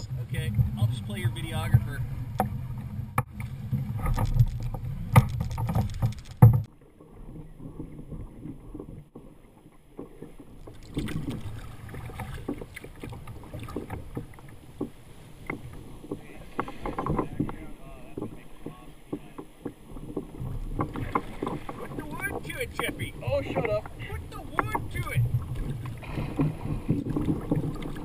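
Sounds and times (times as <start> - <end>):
knocks and bumps on boat: 0.0 - 6.7, 9.9 - 28.0
water lapping: 0.0 - 28.0
small clicks and knocks: 3.2 - 6.7.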